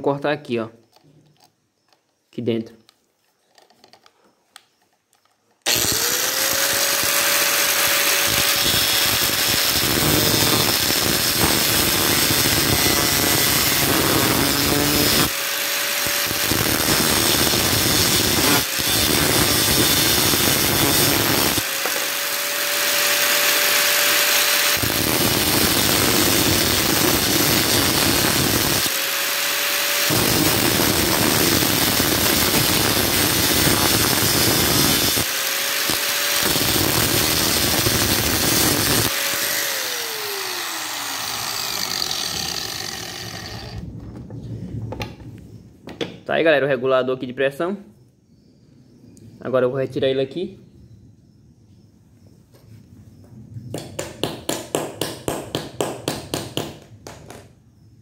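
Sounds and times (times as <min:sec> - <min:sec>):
angle grinder motor whine: 0:05.6 - 0:43.9
grinder cutting metal: 0:05.7 - 0:43.8.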